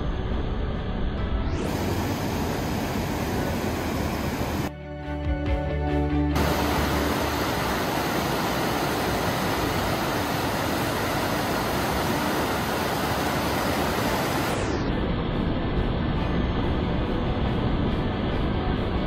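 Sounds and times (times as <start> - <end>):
river rushing over rocks: 6.4 - 14.7.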